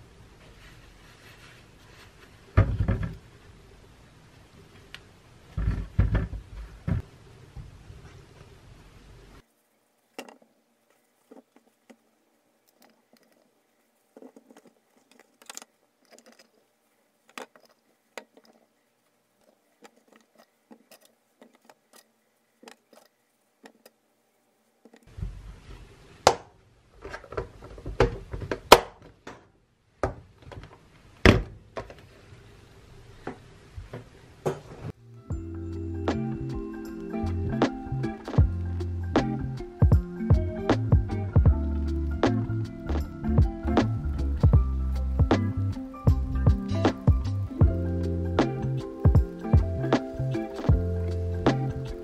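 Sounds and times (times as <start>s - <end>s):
paper towels rustling: 0.4s - 2.6s.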